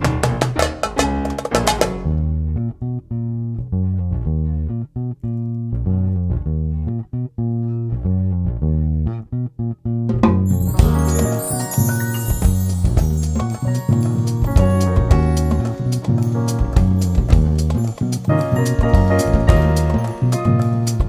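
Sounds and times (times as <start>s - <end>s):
jazz band with drums: 0.0s - 2.4s, 10.1s - 21.0s
plucked bass guitar: 0.0s - 21.0s.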